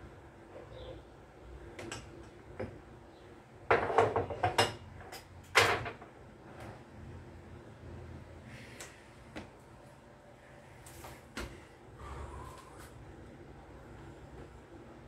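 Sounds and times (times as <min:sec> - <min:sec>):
cookware knocking and clanking: 0:03.7 - 0:06.0.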